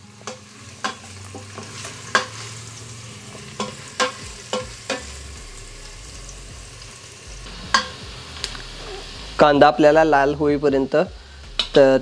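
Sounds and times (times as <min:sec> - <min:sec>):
onions sizzling in hot oil: 0:00.0 - 0:12.0
spatula knocking and scraping pot: 0:07.7 - 0:08.1.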